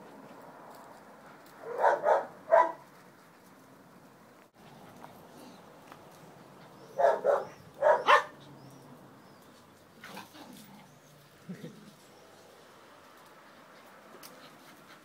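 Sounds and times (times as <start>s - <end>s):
small dogs yapping: 6.7s - 8.8s, 10.0s - 11.1s.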